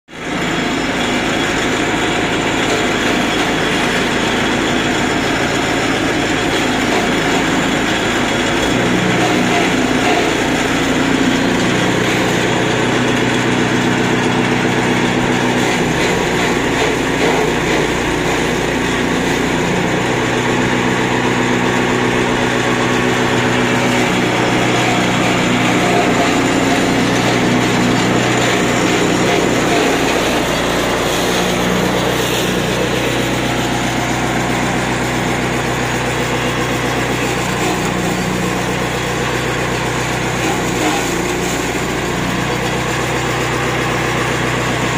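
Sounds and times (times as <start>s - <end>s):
small petrol engine running: 0.1s - 44.9s.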